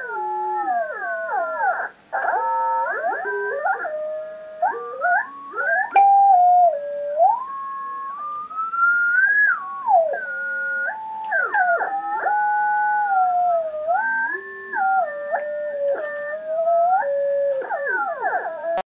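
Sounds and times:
sliding whistling tones: 0:04.7 - 0:18.8.

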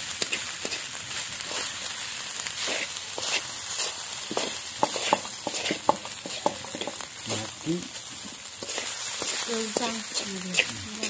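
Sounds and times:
rice sizzling in wok: 0:00.0 - 0:11.0
metal spatula scraping pan: 0:02.6 - 0:07.5.

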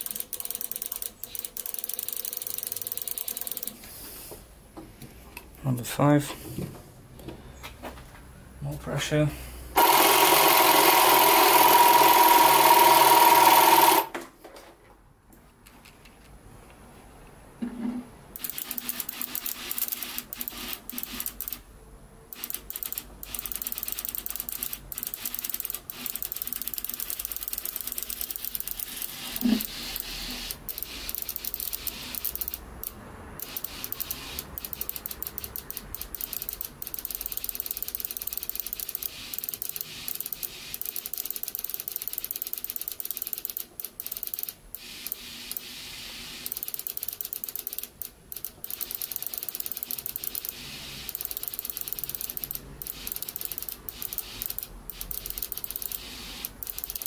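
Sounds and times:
fuel injector clicking rapidly: 0:09.8 - 0:14.0, 0:18.4 - 0:21.6, 0:22.4 - 0:44.6, 0:46.4 - 0:57.0.

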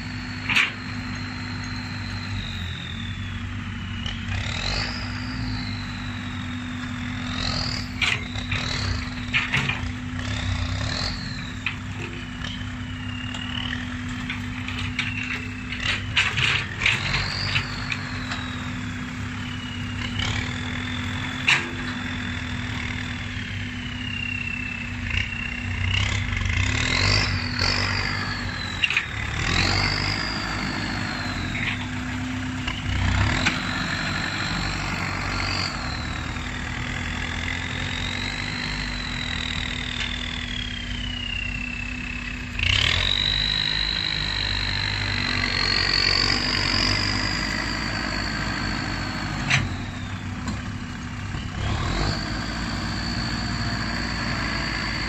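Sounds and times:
tractor diesel engine running: 0:00.0 - 0:55.0
turbo whistle: 0:34.4 - 0:48.2.

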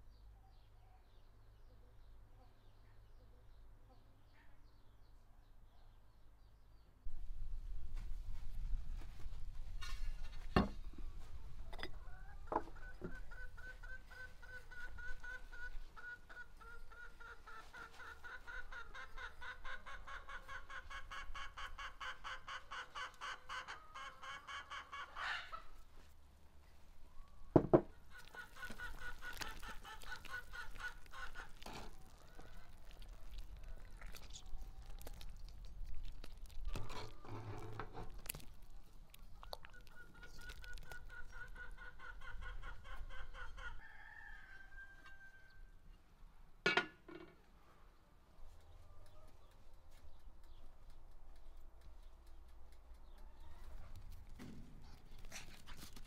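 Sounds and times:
chickens clucking: 0:11.0 - 0:26.1, 0:27.1 - 0:45.5, 0:46.7 - 0:56.0.

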